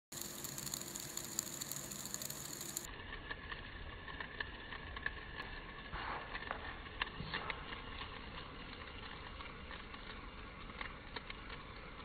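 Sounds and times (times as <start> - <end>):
fidget spinner bearing whir: 0.0 - 12.0
light ticks and rattles: 0.1 - 2.9.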